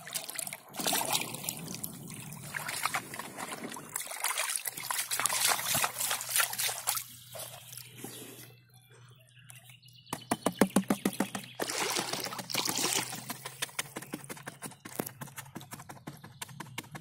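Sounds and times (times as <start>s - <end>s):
water sloshing in plastic pan: 0.0s - 8.0s, 11.0s - 13.5s.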